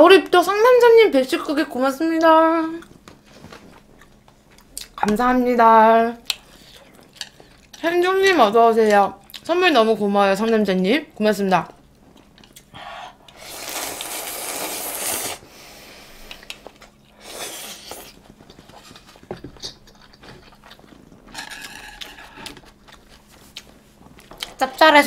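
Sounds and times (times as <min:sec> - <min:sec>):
chewing: 0:06.2 - 0:07.8, 0:16.2 - 0:24.6
noodles being slurped: 0:13.3 - 0:15.5.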